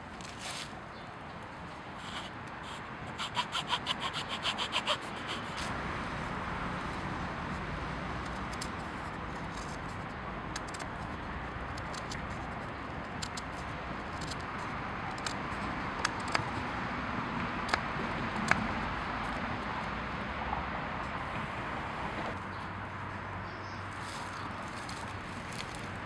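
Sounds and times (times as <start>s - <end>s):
knife clicking and scraping wood: 2.0s - 5.7s, 8.2s - 8.8s, 9.4s - 11.1s, 11.7s - 15.4s, 16.0s - 16.5s.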